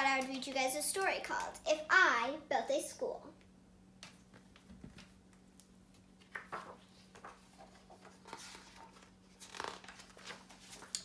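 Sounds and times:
book pages rustling: 4.0s - 11.0s.

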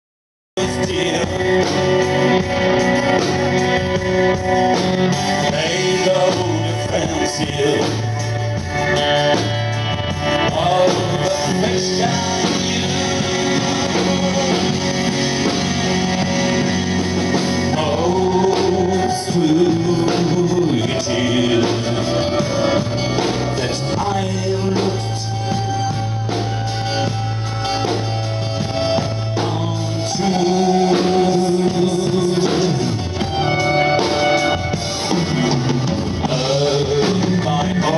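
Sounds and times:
man singing: 0.6s - 3.3s, 5.1s - 9.5s, 10.2s - 25.8s, 29.2s - 33.4s, 36.2s - 37.9s
electric guitar: 0.6s - 37.9s
low bass notes: 0.6s - 37.9s.

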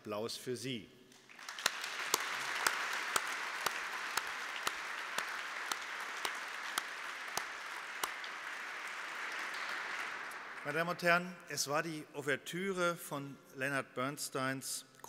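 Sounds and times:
hands clapping near microphone: 1.1s - 11.1s
audience applause in large hall: 1.1s - 11.3s.

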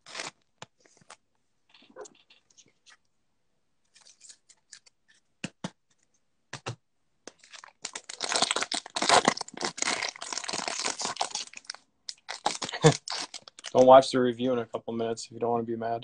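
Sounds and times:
foil wrapper tearing and crinkling: 0.0s - 0.4s, 7.3s - 13.8s.

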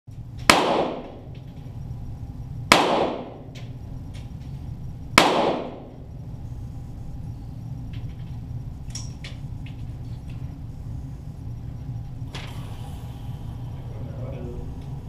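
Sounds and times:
pistol shots ringing: 0.5s - 1.2s, 2.7s - 3.4s, 5.2s - 5.9s.

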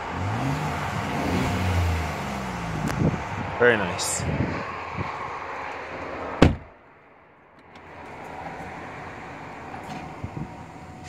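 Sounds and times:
outside noise: 0.0s - 11.0s
car door thump: 6.4s - 6.7s.

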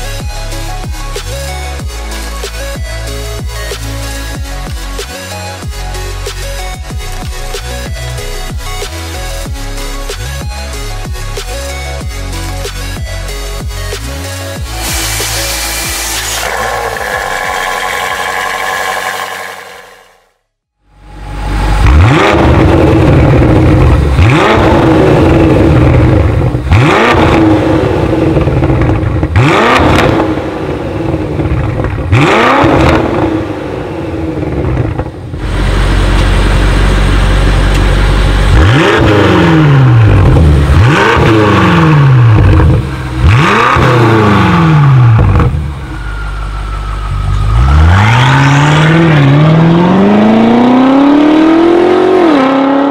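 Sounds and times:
car engine revving: 14.1s - 20.4s, 21.1s - 52.9s
car accelerating hard: 14.7s - 20.2s, 21.7s - 45.8s, 47.1s - 52.9s.

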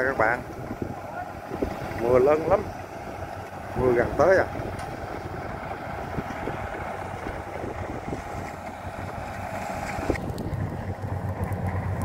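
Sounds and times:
combine harvesters running: 0.0s - 12.0s
wind noise on microphone: 0.0s - 12.0s.

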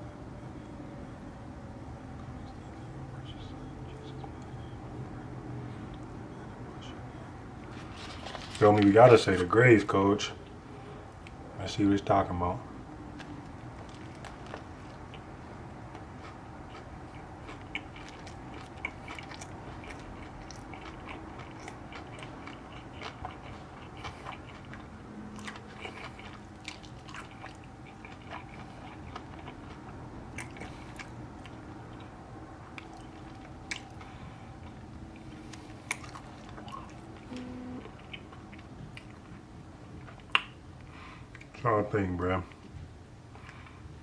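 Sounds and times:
low hum: 12.4s - 40.9s
person chewing crispy food: 13.2s - 39.4s.

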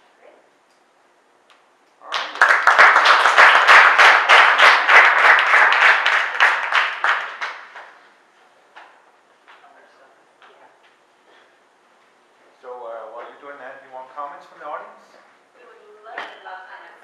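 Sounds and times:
audience applauding: 2.0s - 8.0s.

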